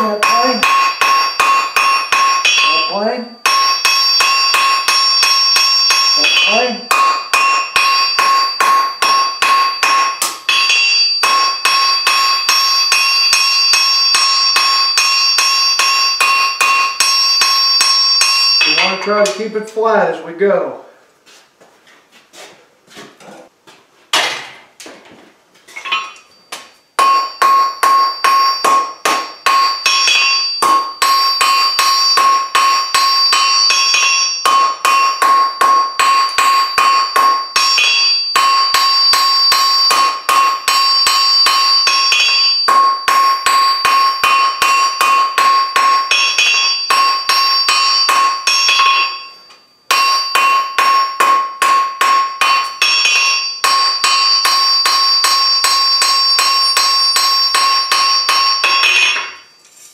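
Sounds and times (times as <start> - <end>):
hammer ringing on anvil: 0.0 - 19.4, 25.7 - 59.6
metal clanks: 25.6 - 59.7.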